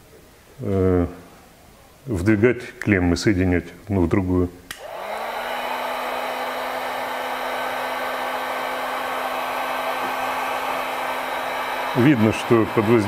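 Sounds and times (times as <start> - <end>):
heat gun blowing air: 4.7 - 13.0.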